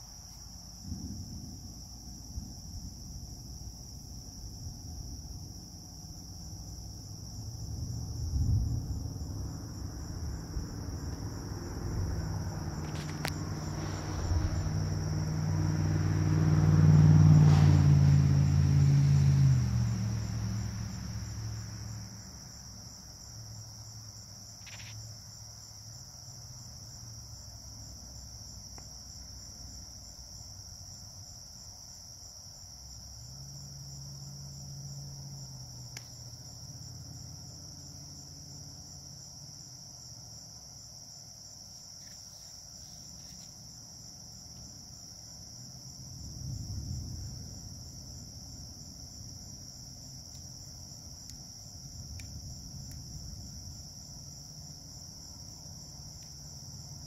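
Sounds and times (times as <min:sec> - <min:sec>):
night insects chirping: 0:00.0 - 0:57.0
distant thunder rolling: 0:00.7 - 0:18.2, 0:45.9 - 0:50.1.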